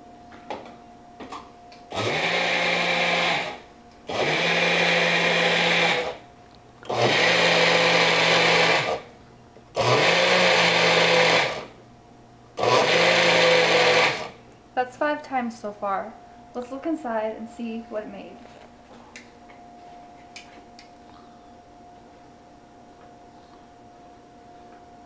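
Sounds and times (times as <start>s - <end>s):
blender pulsing: 1.9s - 6.2s, 6.9s - 9.1s, 9.8s - 11.7s, 12.6s - 14.4s.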